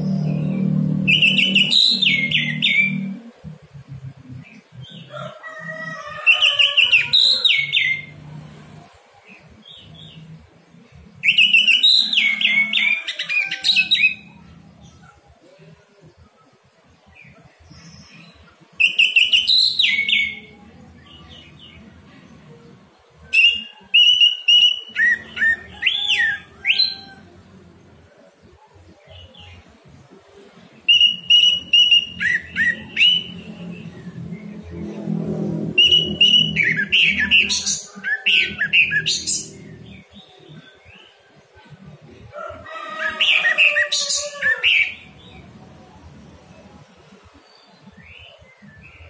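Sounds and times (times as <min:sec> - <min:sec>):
thrush singing: 0:00.0 - 0:05.1, 0:30.9 - 0:40.6.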